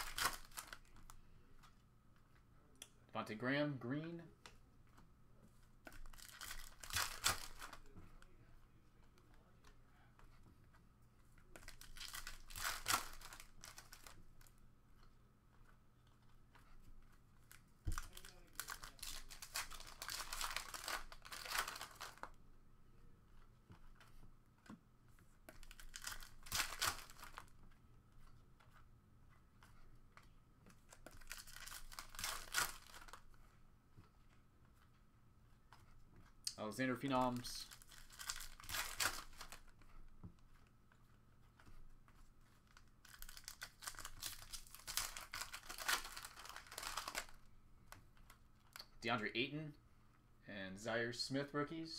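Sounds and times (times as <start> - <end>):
card pack wrappers tearing and crinkling: 0.0 - 0.9, 5.9 - 7.9, 11.6 - 14.5, 17.5 - 22.3, 25.6 - 27.5, 31.0 - 33.3, 37.1 - 39.7, 42.7 - 47.4.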